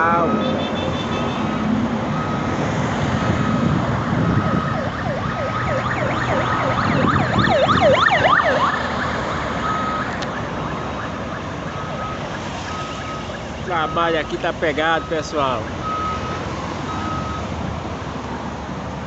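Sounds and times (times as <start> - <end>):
road traffic passing: 0.0 - 19.0
reversing alarm beeping: 1.5 - 2.6, 3.3 - 8.8, 9.6 - 17.5
electronic siren: 3.2 - 14.4, 15.0 - 17.5.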